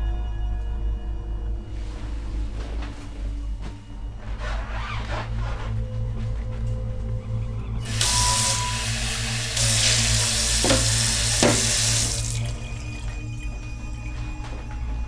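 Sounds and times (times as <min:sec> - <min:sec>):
tap running into steel sink: 0:09.6 - 0:12.5
mug knocking against sink: 0:10.6 - 0:12.1.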